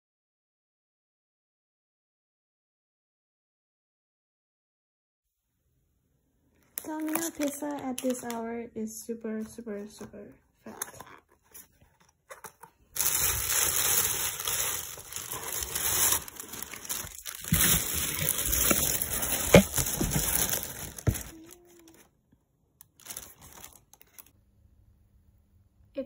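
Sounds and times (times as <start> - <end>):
plastic bag rustling: 6.6 - 8.4, 10.7 - 22.0, 23.0 - 24.3.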